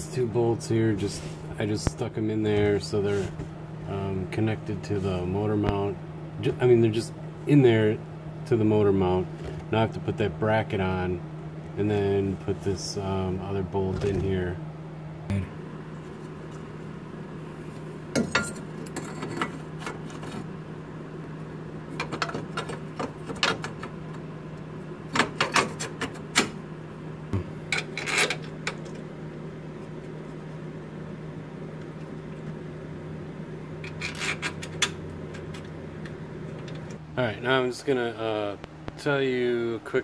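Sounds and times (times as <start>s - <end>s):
steady low hum: 0.0s - 40.0s
metal parts clinking and scraping: 27.7s - 28.8s, 33.8s - 35.7s.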